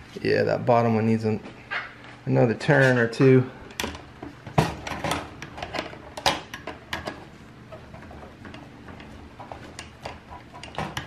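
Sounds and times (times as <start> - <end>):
screwdriver scraping metal: 8.5 - 11.0.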